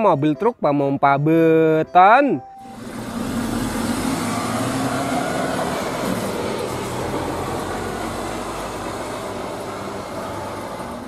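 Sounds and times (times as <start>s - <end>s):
diesel truck engine running: 2.6s - 11.0s.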